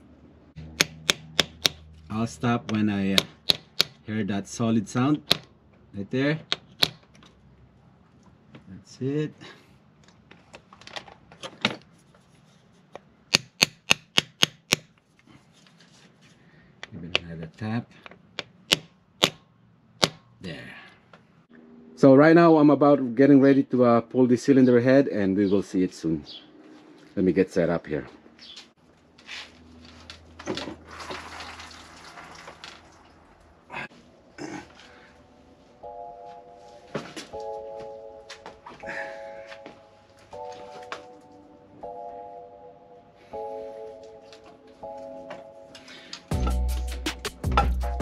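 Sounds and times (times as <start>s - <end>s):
sharp metal taps: 0.6s - 1.9s, 2.6s - 4.0s, 13.3s - 15.0s, 18.0s - 20.3s.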